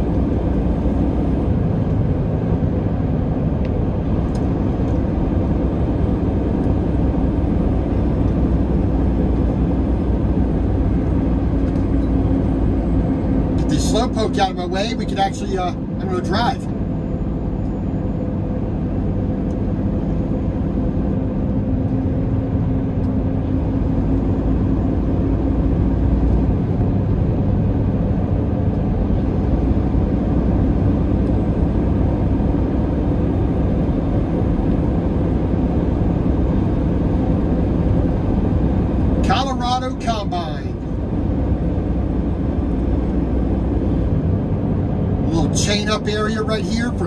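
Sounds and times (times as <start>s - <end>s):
road noise: 0.0s - 47.0s
truck diesel engine droning: 0.0s - 47.0s.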